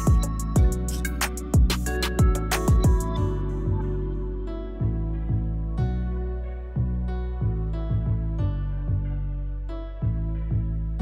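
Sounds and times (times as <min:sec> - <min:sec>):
deep kick drum: 0:00.0 - 0:03.2
music with steady beat: 0:00.0 - 0:06.0.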